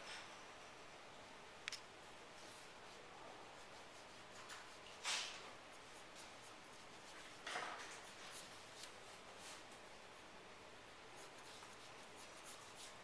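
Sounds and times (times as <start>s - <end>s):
pencil scratching on paper: 11.1s - 13.0s.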